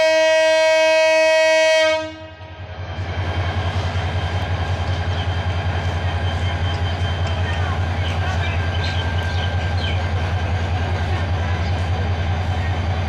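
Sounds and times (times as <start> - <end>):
locomotive horn blowing: 0.0 - 2.5.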